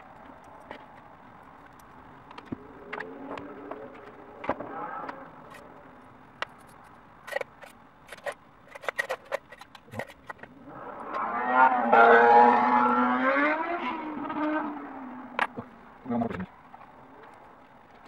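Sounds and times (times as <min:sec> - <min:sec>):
loud buzzing drone: 0:10.6 - 0:15.4.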